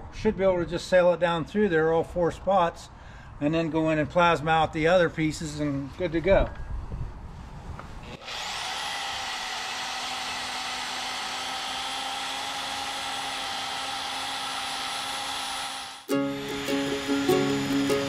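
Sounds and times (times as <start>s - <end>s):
band saw cutting steel: 8.0s - 18.0s.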